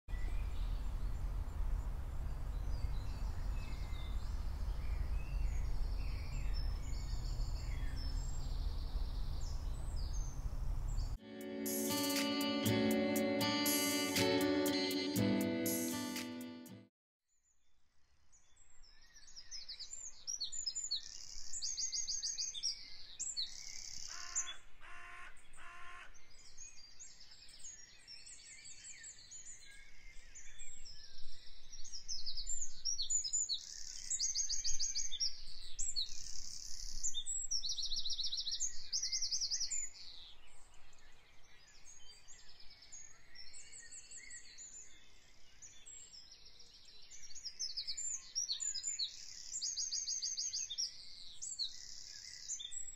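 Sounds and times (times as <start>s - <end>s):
songbirds trilling and chirping: 0.1s - 11.2s.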